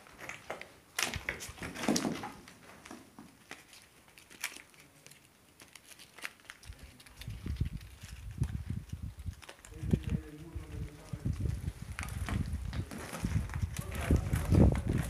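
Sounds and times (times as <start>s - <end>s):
rubble crunching: 0.0s - 15.0s.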